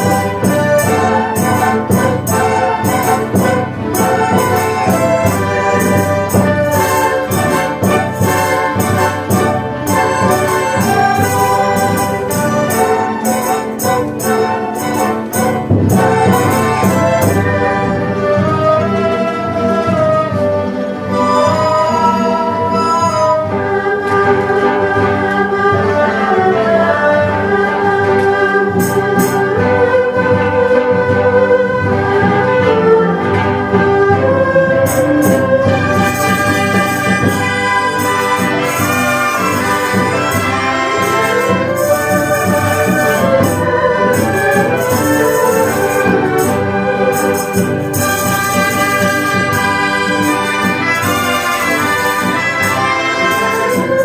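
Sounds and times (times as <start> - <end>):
sharp percussion strikes: 0.0 - 17.7, 28.8 - 29.7, 34.8 - 54.0
traditional orchestra playing: 0.0 - 54.0.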